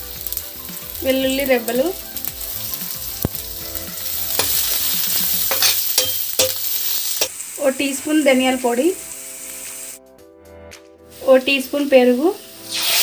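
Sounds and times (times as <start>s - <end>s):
food sizzling in hot oil: 0.0s - 10.0s, 11.1s - 13.0s
metal spatula knocking pan: 4.3s - 7.4s.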